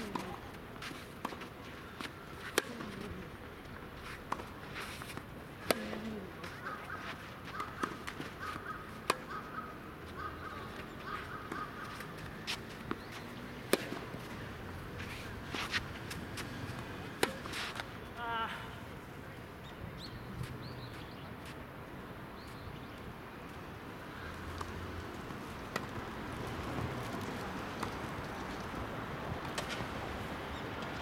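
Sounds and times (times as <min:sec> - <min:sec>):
racket hitting tennis ball: 0:00.0 - 0:03.3, 0:04.1 - 0:09.5, 0:10.2 - 0:17.9, 0:25.7 - 0:26.0.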